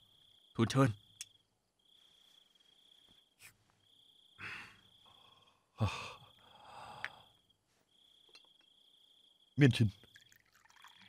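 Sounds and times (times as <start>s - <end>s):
crickets chirring: 0.0s - 11.0s
person sighing: 4.4s - 4.8s, 5.8s - 7.3s.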